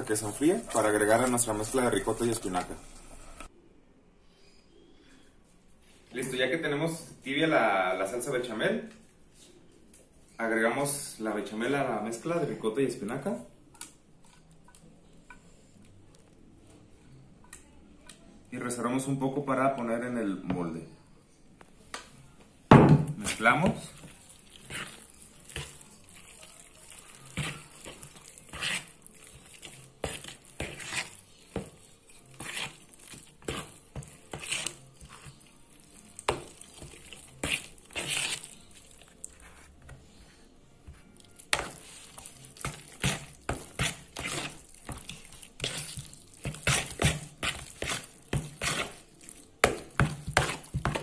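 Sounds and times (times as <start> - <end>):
spoon scraping and squelching: 0.0 - 3.5, 23.2 - 39.9, 40.9 - 51.0.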